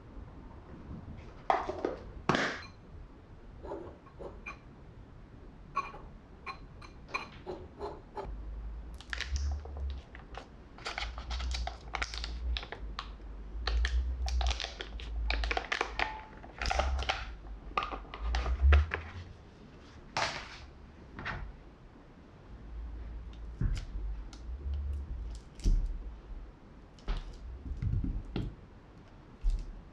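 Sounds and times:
butter wrapper crinkling: 9.0s - 13.1s, 13.7s - 18.4s.

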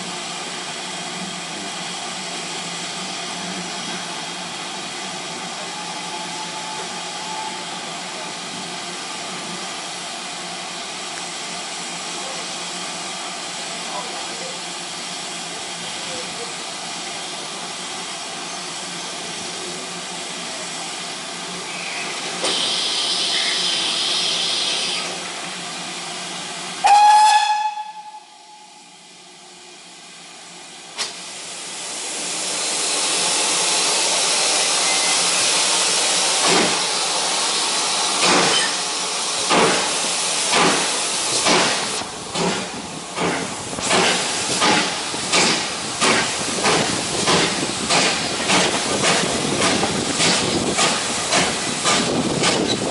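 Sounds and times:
steam locomotive hissing: 0.0s - 52.9s
steam whistle blast: 5.6s - 7.8s, 26.8s - 28.9s.

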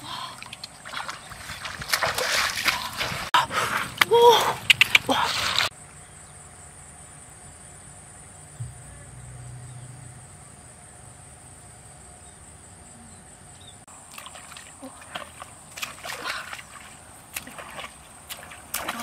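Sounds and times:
low rumble: 8.6s - 11.7s.

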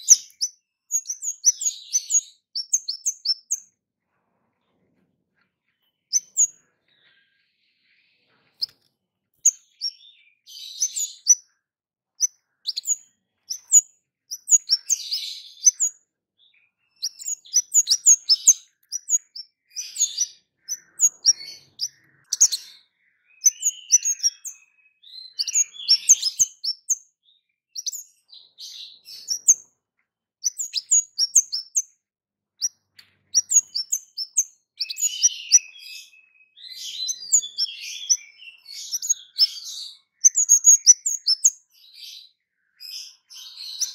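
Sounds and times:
thrush singing sharp chirps: 16.8s - 27.0s, 33.2s - 41.6s.

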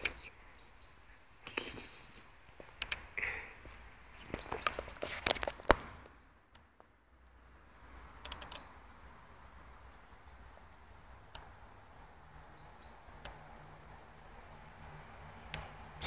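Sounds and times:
faint bird chirps: 0.0s - 2.4s
sharp taps and clicks: 2.6s - 3.0s, 8.2s - 8.6s.

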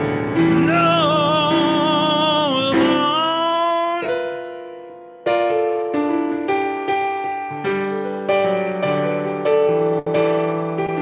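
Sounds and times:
sustained keyboard chords: 0.0s - 11.0s
person singing with vibrato: 0.4s - 4.6s.

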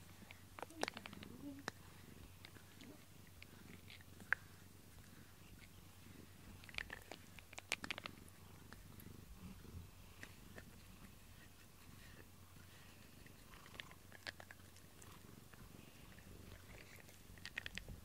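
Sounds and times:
cat purring: 0.0s - 18.0s.

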